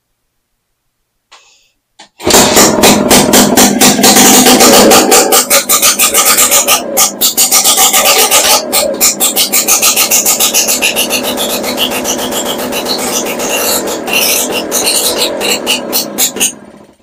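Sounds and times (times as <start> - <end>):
two-stroke engine running: 2.2 - 17.0.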